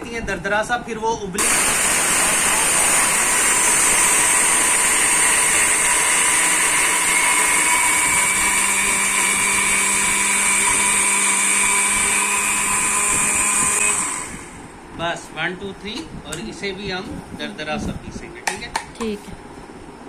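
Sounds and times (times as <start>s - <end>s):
electric spice grinder running: 1.4s - 14.7s.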